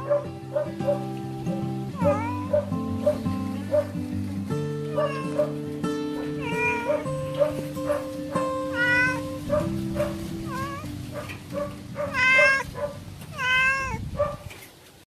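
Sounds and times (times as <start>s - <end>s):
background music: 0.0s - 13.0s
cat meowing: 2.0s - 2.7s, 4.9s - 5.6s, 6.3s - 7.2s, 8.7s - 9.4s, 10.4s - 11.0s, 12.0s - 14.1s.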